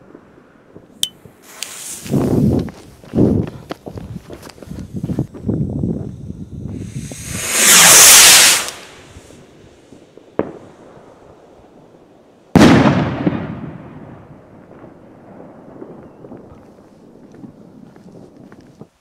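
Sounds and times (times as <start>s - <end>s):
firework sharp crack: 0.8s - 3.1s, 6.1s - 11.2s, 12.6s - 15.0s
firework hissing as it rises: 1.4s - 3.0s, 3.6s - 10.0s
firework bang echoing: 6.7s - 9.4s, 12.6s - 16.7s.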